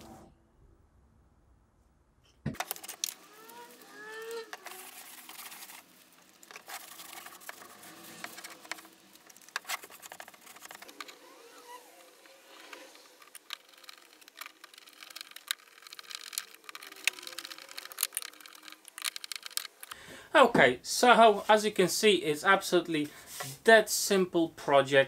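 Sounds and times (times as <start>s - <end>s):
cloth wiping over plywood: 23.1s - 23.7s.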